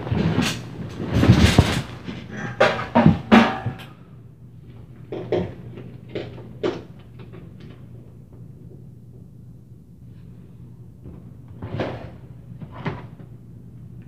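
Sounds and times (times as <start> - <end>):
thuds and bangs through ceiling: 0.0 - 3.9
low steady hum: 0.0 - 14.0.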